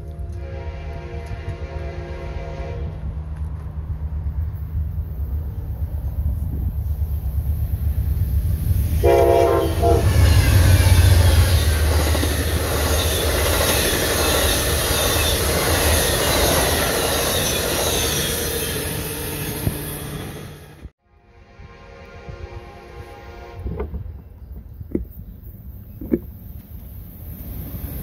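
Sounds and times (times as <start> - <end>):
train horn chord: 0.0 - 3.1, 8.9 - 10.7, 21.0 - 23.9
train wheels rumbling on rails: 0.0 - 20.9.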